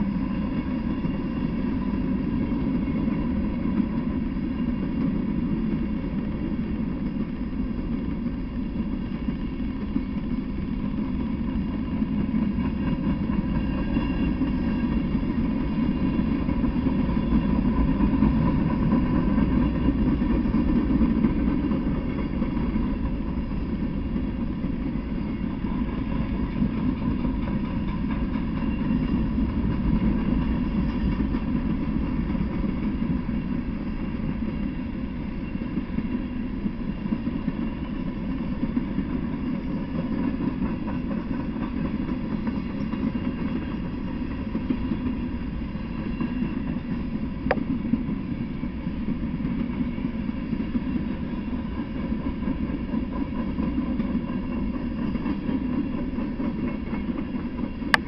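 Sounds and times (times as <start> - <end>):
steel wheels rolling on rails: 0.0 - 58.0.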